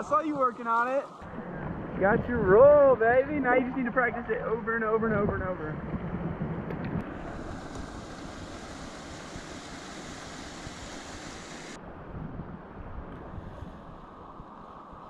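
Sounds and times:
rushing whitewater: 7.0s - 11.8s.

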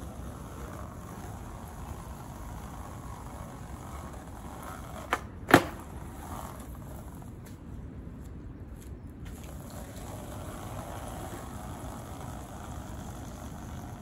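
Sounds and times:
skateboard slapping pavement: 0.0s - 7.6s, 9.2s - 14.0s
skateboard tail popping: 0.0s - 7.6s
background noise: 0.0s - 14.0s.

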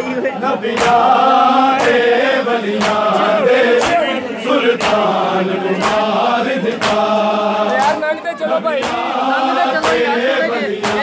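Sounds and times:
men chanting in unison: 0.1s - 11.0s
hands slapping on chests: 0.7s - 4.1s, 4.7s - 8.1s, 8.8s - 9.2s, 9.8s - 10.2s, 10.8s - 11.0s.

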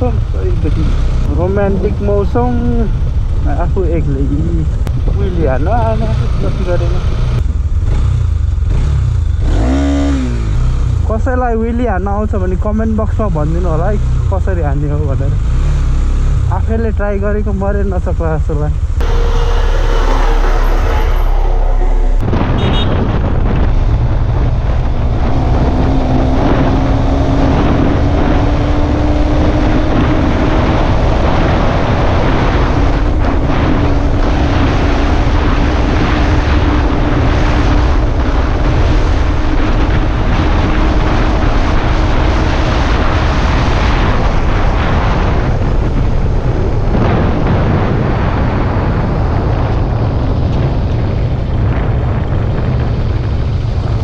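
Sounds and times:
vehicle low rumble: 0.0s - 54.0s
faint engine note: 19.0s - 23.6s.

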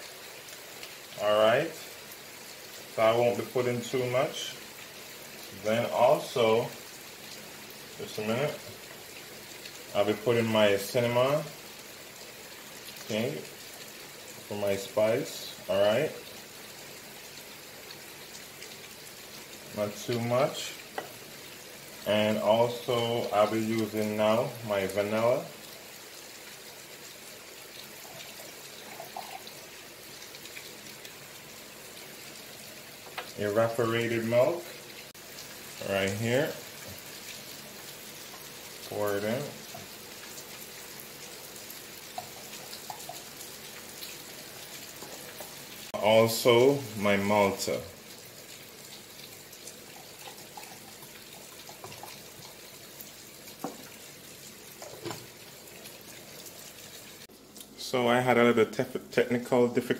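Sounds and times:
faint liquid trickle: 0.0s - 59.9s
faint steady hiss: 0.0s - 59.9s.

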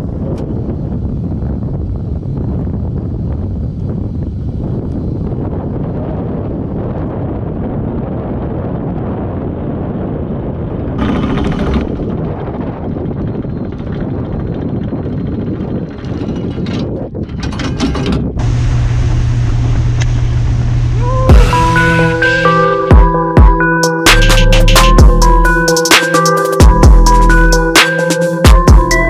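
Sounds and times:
wind buffeting microphone: 0.0s - 22.2s
outboard motor drone: 10.5s - 23.7s
electric anchor winch running: 10.9s - 22.7s.

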